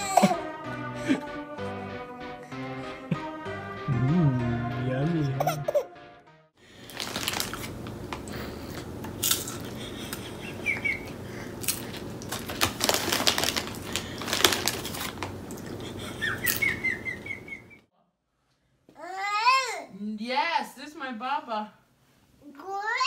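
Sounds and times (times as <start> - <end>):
plastic chip bag rustling: 6.7 - 8.3, 11.6 - 16.7.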